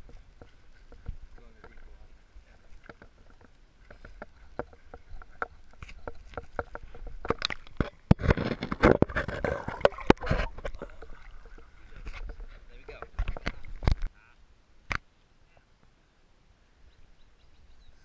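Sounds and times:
water splashing and sloshing: 0.0s - 14.2s
handling clicks and knocks: 2.7s - 14.1s.

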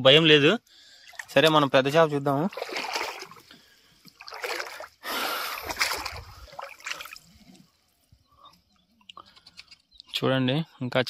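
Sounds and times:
faint water drips: 0.7s - 9.4s
person wading through water: 0.8s - 7.9s.

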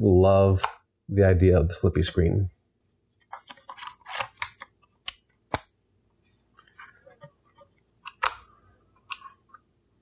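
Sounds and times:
sharp plastic clicks: 8.0s - 9.2s.

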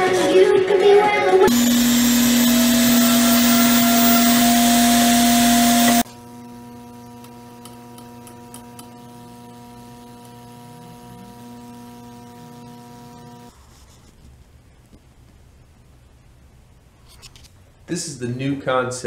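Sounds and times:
rotary tool whining: 1.5s - 6.3s
quiet steady hum: 8.8s - 19.0s.

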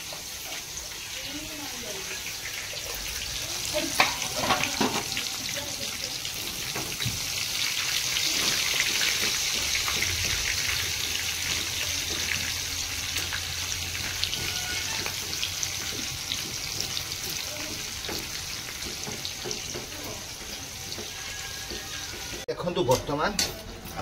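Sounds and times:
onions sizzling in hot oil: 0.0s - 22.5s.

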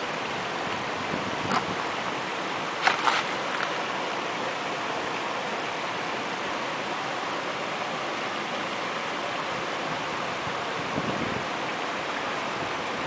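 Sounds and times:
stream water rushing: 0.0s - 13.0s.

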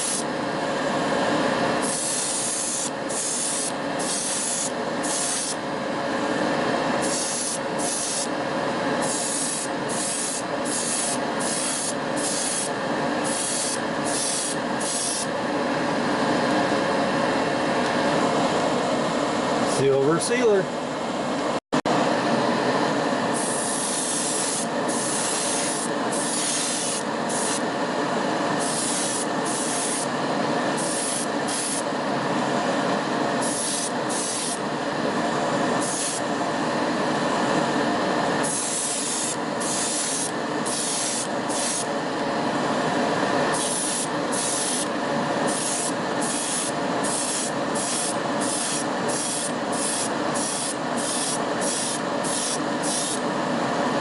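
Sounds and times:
spray paint hissing: 0.0s - 0.3s, 1.8s - 5.6s, 7.0s - 8.3s, 9.0s - 15.3s, 23.4s - 27.6s, 28.6s - 30.1s, 30.8s - 31.9s, 33.4s - 34.6s, 35.8s - 36.2s, 38.4s - 41.9s, 43.5s - 44.9s, 45.5s - 53.2s
steady fan-like hum: 0.0s - 54.0s.

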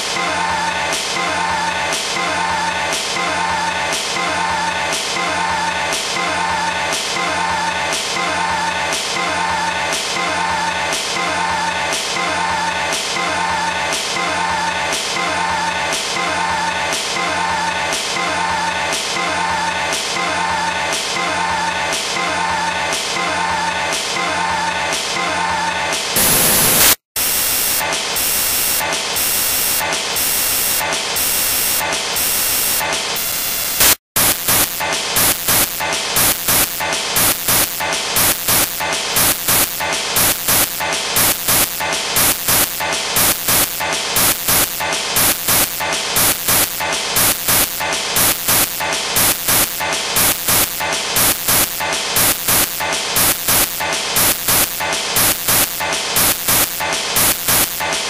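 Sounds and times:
harsh static: 25.9s - 58.0s.

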